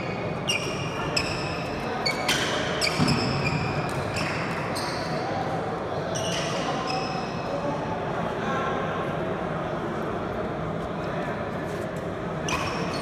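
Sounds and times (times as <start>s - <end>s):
sneakers squeaking on wooden floor: 0.0s - 5.3s.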